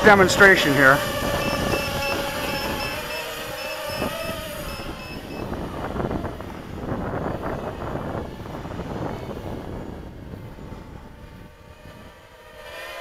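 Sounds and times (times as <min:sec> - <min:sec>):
drone motors buzzing: 0:00.0 - 0:13.0
short high electronic beeps: 0:01.1 - 0:05.5.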